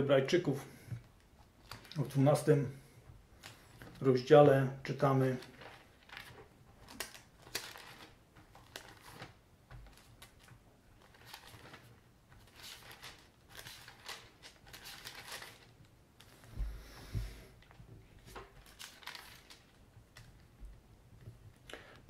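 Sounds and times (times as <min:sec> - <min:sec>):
thin paper pages flicking: 0:05.4 - 0:16.4, 0:18.3 - 0:20.4.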